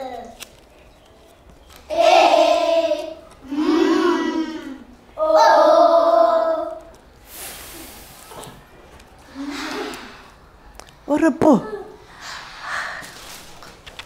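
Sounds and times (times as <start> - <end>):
children chanting together: 1.9 - 6.9
short hiss: 7.2 - 8.4.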